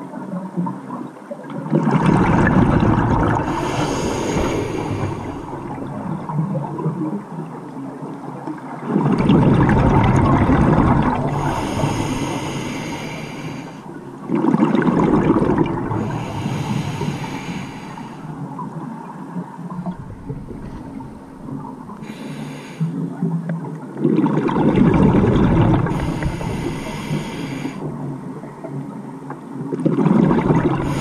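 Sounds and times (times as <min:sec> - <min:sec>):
exhaled bubbles bursting: 0:01.6 - 0:07.4, 0:08.8 - 0:13.1, 0:13.9 - 0:17.2, 0:19.7 - 0:22.2, 0:23.1 - 0:27.1, 0:29.7 - 0:31.0
hissing regulator inhales: 0:03.4 - 0:05.8, 0:11.3 - 0:14.0, 0:16.0 - 0:18.4, 0:21.9 - 0:23.0, 0:25.9 - 0:27.9.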